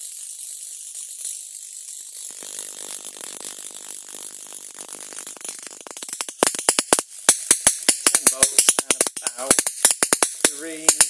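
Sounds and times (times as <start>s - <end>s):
electric arc fizzing crackle: 0.0s - 11.0s
loud sharp spark cracks: 0.0s - 11.0s.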